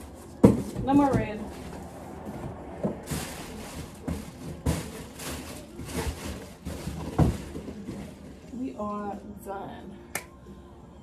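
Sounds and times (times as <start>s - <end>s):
cardboard box rustling: 0.0s - 8.6s
plastic wrapping rustling: 0.0s - 9.1s.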